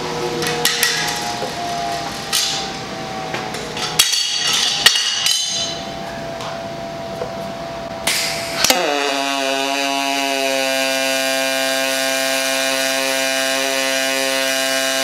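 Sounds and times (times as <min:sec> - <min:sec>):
metal plates clinking on table: 0:03.8 - 0:05.9.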